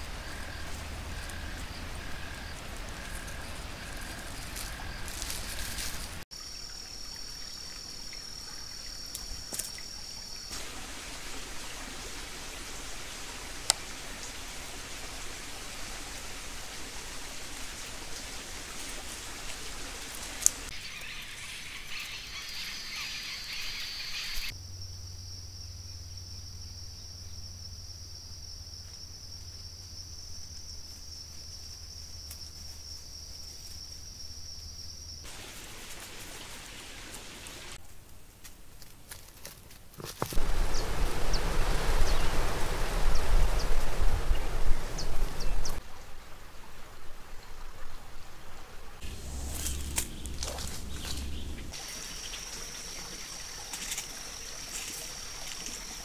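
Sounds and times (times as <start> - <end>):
even hiss: 40.4 - 45.8, 49.0 - 56.0.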